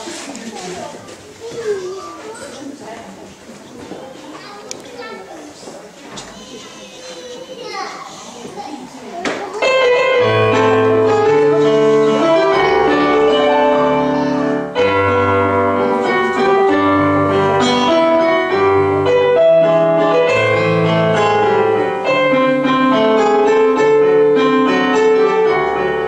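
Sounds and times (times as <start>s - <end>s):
slow piano music: 9.6s - 26.0s.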